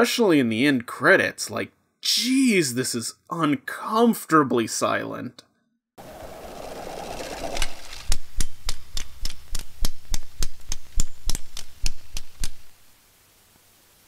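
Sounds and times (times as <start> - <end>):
light hiss: 6.0 - 14.0.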